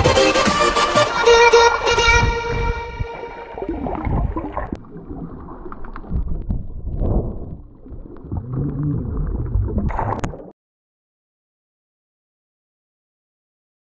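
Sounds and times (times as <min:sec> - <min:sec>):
underwater rumbling and bubbling: 0:02.2 - 0:10.5
small clicks underwater: 0:05.4 - 0:10.5.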